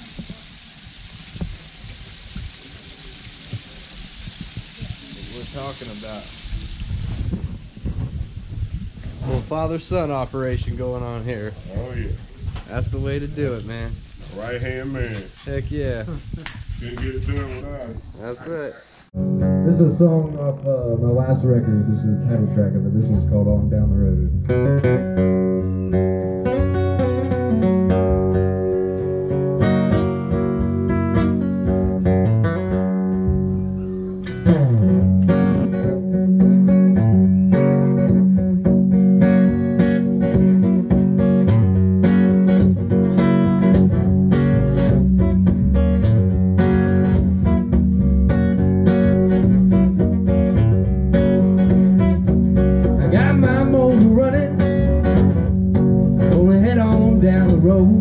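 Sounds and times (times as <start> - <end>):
acoustic guitar strumming: 19.2 - 58.0.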